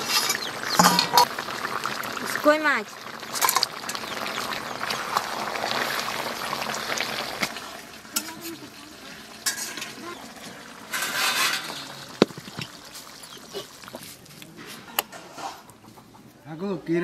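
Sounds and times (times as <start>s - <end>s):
metal spatula scraping a pan: 0.0s - 1.3s, 9.4s - 10.0s, 10.9s - 12.0s, 14.6s - 15.7s
food sizzling: 0.0s - 15.8s.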